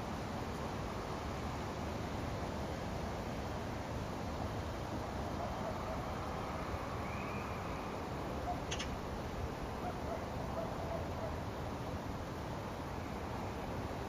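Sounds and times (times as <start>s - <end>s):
low outdoor background noise: 0.0s - 14.0s.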